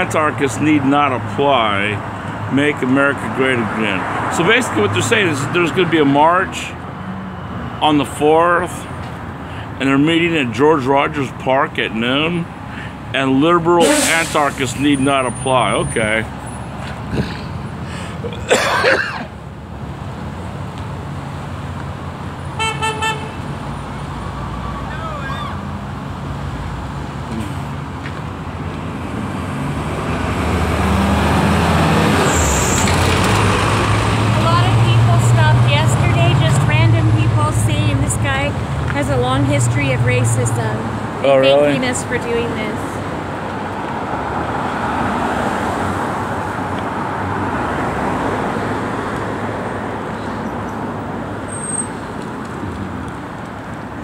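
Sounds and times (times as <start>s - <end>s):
bus engine passing: 0.0s - 54.0s
cars driving past: 0.0s - 54.0s
street traffic: 0.0s - 54.0s
brief high hiss: 13.8s - 14.6s.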